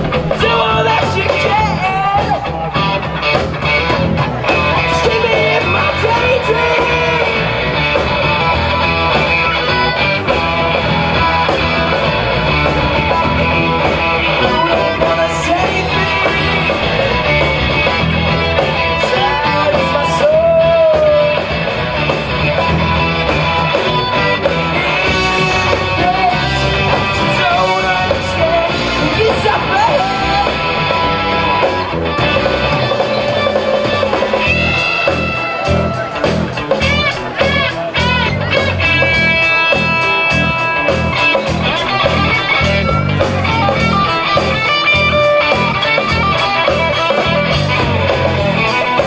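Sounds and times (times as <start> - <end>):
man singing: 0.0 - 3.0, 4.4 - 8.0, 12.6 - 22.1, 23.0 - 31.7
rock band playing: 0.0 - 49.0.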